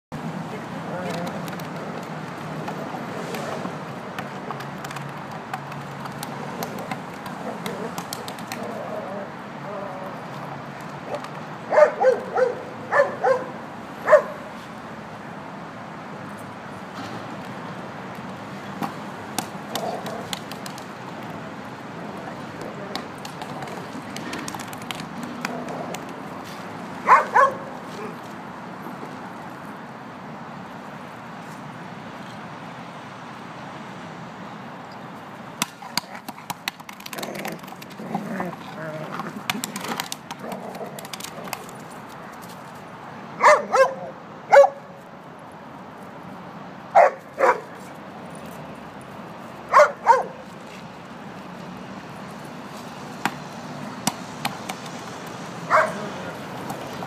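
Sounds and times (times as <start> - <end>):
dog barking: 11.7 - 14.5, 27.0 - 27.7, 43.4 - 44.9, 47.0 - 47.7, 49.7 - 50.4, 55.7 - 56.1.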